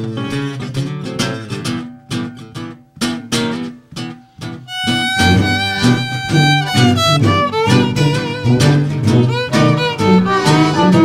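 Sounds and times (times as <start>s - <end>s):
plucked guitar notes: 0.0s - 11.0s
violin melody with vibrato: 4.7s - 11.0s.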